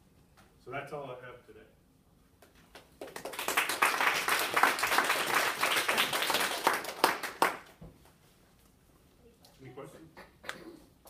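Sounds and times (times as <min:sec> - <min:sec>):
audience applauding: 0:03.0 - 0:07.7.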